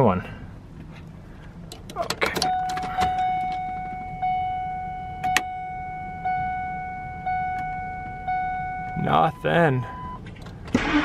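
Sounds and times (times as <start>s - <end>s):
car warning chime dinging: 2.3s - 10.3s.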